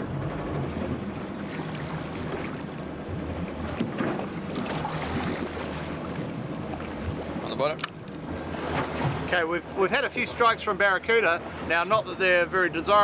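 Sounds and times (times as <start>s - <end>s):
water wash: 0.0s - 7.6s
boat engine hum: 0.0s - 13.0s.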